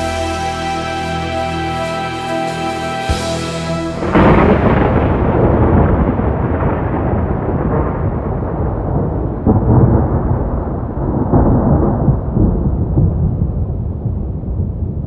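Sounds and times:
low rolling rumble: 3.1s - 15.0s.

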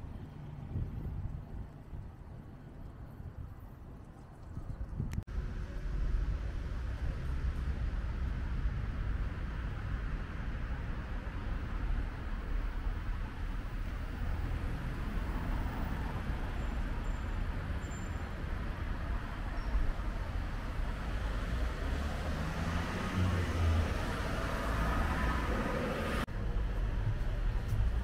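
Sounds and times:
low rumble of traffic: 0.0s - 28.0s
vehicle passing close: 21.0s - 26.3s.

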